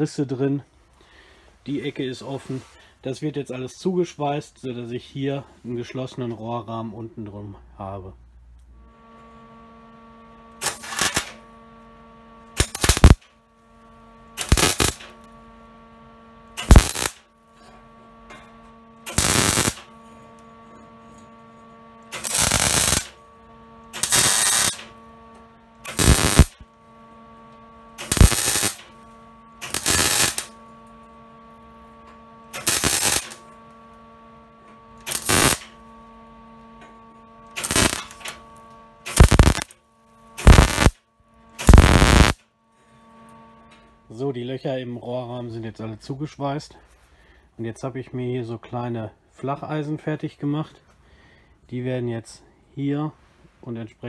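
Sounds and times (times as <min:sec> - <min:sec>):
welder electrical hum: 0:00.0 - 0:54.0
welder crackling: 0:08.8 - 0:17.4, 0:18.2 - 0:20.6, 0:21.9 - 0:27.2, 0:27.8 - 0:31.2, 0:32.5 - 0:34.0, 0:35.0 - 0:35.9, 0:37.4 - 0:41.0, 0:41.6 - 0:42.4.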